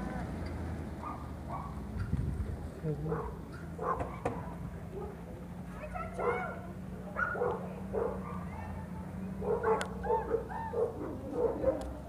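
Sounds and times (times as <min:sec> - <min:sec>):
dog barking: 0:01.0 - 0:01.8, 0:03.1 - 0:05.2, 0:06.1 - 0:08.8, 0:09.4 - 0:12.0.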